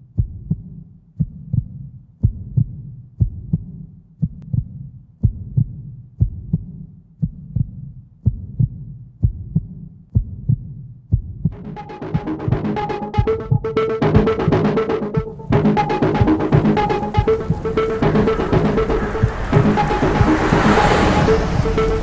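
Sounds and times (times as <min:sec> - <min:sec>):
heartbeat: 0:00.2 - 0:22.0
low hum: 0:11.6 - 0:22.0.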